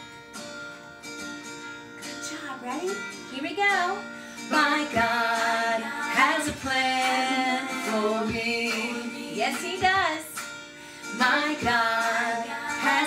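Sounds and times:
acoustic guitar: 0:00.0 - 0:13.0
children's song singing: 0:04.5 - 0:10.5, 0:11.1 - 0:13.0.

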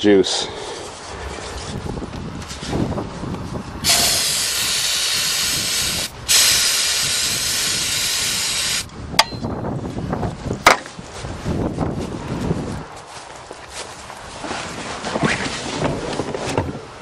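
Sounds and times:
aerosol can spraying hiss: 0:03.8 - 0:08.9.

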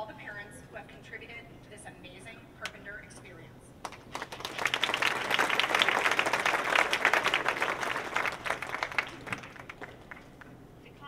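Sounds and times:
audience applauding: 0:03.8 - 0:10.5.

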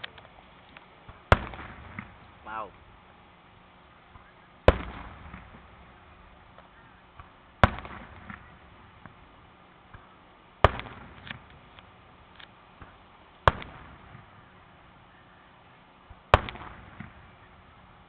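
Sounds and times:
faint firework pops: 0:00.0 - 0:02.8, 0:04.1 - 0:05.9, 0:06.5 - 0:09.2, 0:09.9 - 0:14.4, 0:16.1 - 0:17.4
firework shells booming: 0:01.0 - 0:02.9, 0:04.1 - 0:09.3, 0:09.9 - 0:11.8, 0:12.8 - 0:14.5, 0:16.3 - 0:17.5.

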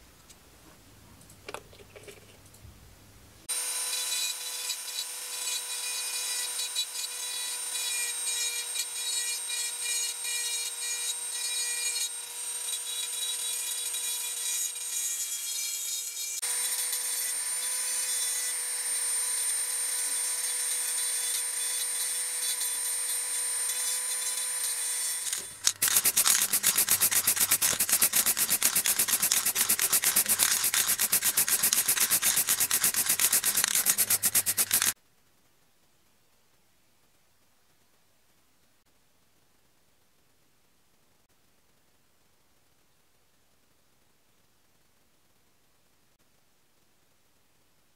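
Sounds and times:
rotary tool grinding metal: 0:03.5 - 0:35.0
pulsing spray paint hiss: 0:25.6 - 0:35.0.

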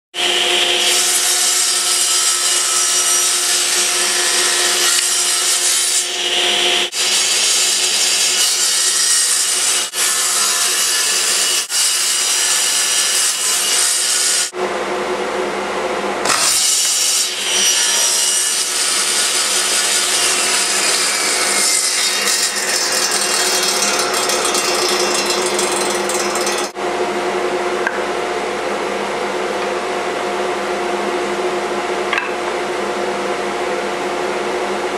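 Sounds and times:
table saw whining: 0:00.2 - 0:14.5, 0:16.2 - 0:26.8.

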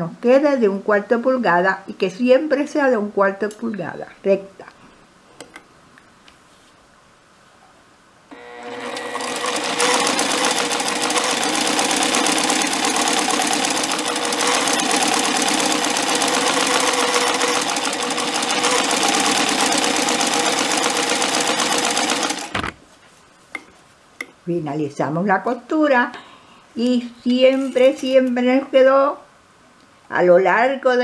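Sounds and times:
sewing machine stitching: 0:08.3 - 0:22.8.

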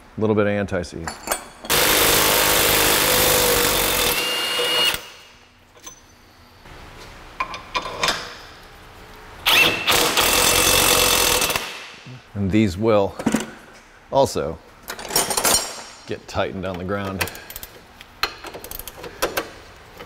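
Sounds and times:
impact wrench running: 0:01.7 - 0:05.3, 0:09.4 - 0:12.0.

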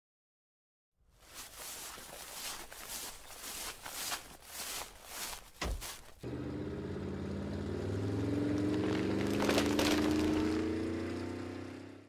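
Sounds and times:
vehicle engine running: 0:06.2 - 0:12.0.

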